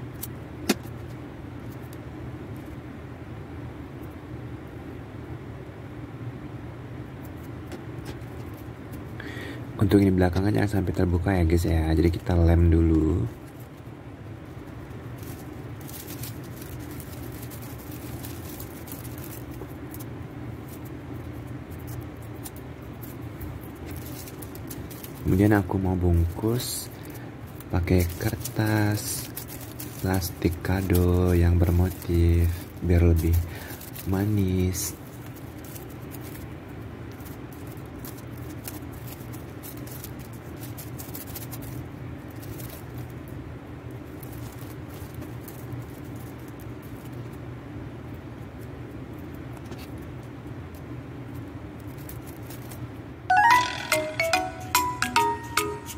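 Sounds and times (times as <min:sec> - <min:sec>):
steady low hum: 0:00.0 - 0:53.3
wrapping paper crinkling: 0:11.5 - 0:47.4, 0:48.5 - 0:53.6.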